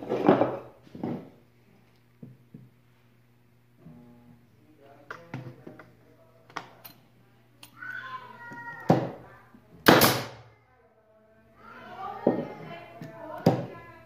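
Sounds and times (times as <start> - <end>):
nail gun firing: 9.8 - 10.4.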